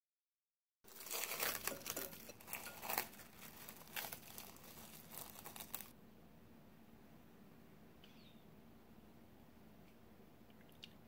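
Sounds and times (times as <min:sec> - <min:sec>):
cling wrap crinkling: 0:00.9 - 0:05.9.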